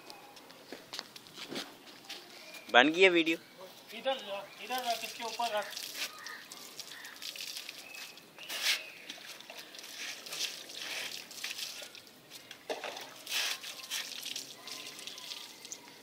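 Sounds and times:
water splashing on concrete: 4.6 - 16.0.

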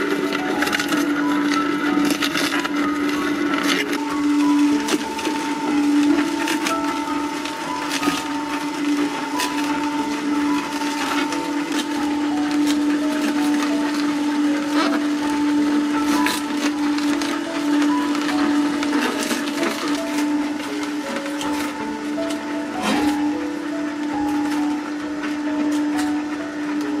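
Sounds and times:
juicer motor humming: 0.0 - 27.0
celery stalks cracking: 14.6 - 23.3.

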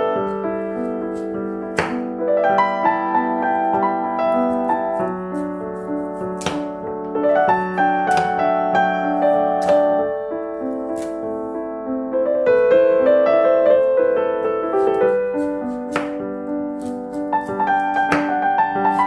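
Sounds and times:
background piano music: 0.0 - 19.0
knife chopping on cutting board: 1.1 - 2.0, 6.2 - 6.8, 7.5 - 8.4, 9.6 - 9.8, 11.0 - 11.2, 14.8 - 16.2, 16.8 - 19.0.

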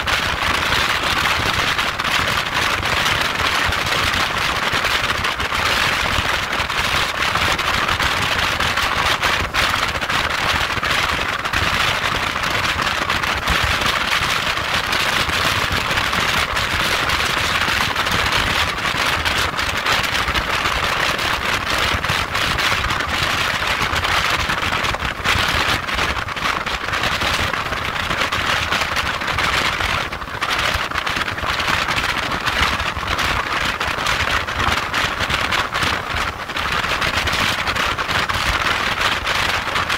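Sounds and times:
crackle: 0.0 - 39.9.

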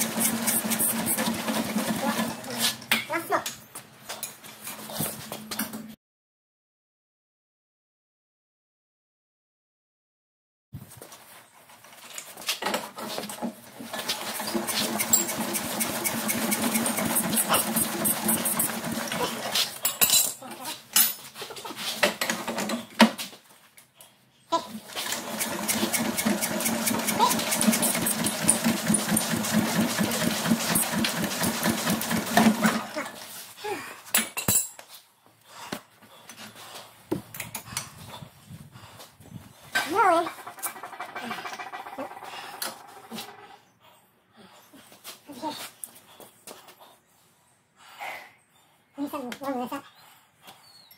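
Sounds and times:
diesel engine clattering: 14.3 - 19.2, 25.2 - 32.6.

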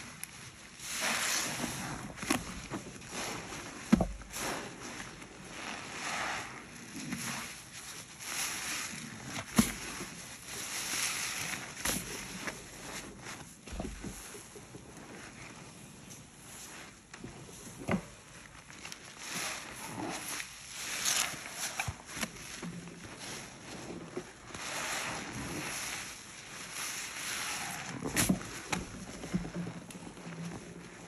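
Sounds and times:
sponges squelching: 0.0 - 31.0
foam fizzing: 0.8 - 2.0, 4.3 - 7.6, 24.6 - 28.3.

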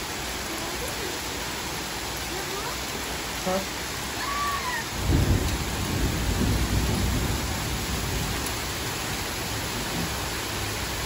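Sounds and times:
heavy rain hiss: 0.0 - 11.0
thunder rumbling: 4.4 - 11.0.

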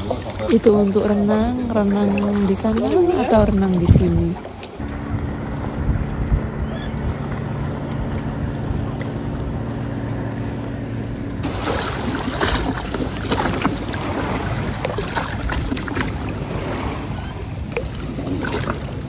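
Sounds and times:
boat motor humming: 0.0 - 19.0
water lapping against rock: 0.0 - 19.0
small sharp splashes and knocks: 11.4 - 16.3.

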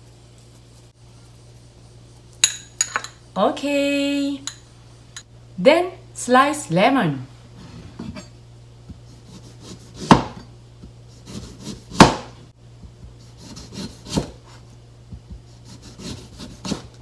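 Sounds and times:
knife chopping on cutting board: 8.9 - 14.5, 15.1 - 17.0.

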